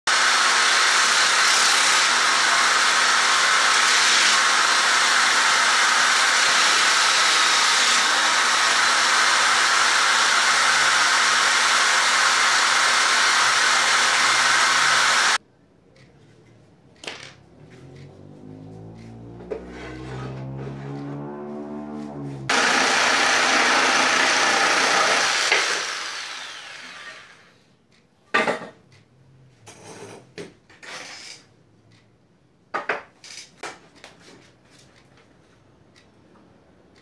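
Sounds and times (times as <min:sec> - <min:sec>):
power tool motor running: 0:00.1 - 0:15.4, 0:17.8 - 0:27.5.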